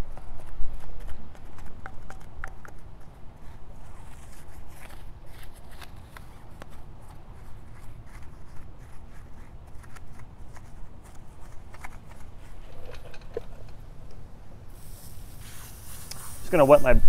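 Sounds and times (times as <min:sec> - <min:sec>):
brush scrubbing a wheel: 0:14.7 - 0:17.0.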